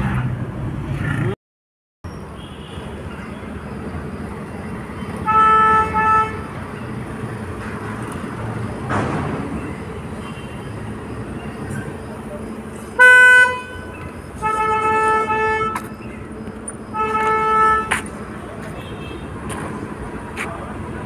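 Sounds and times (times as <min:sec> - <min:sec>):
street traffic: 0:00.0 - 0:01.4, 0:02.0 - 0:21.0
vehicle horn honking: 0:02.4 - 0:03.4, 0:05.2 - 0:06.6, 0:10.2 - 0:10.7, 0:13.0 - 0:15.9, 0:16.9 - 0:18.1, 0:18.7 - 0:19.4.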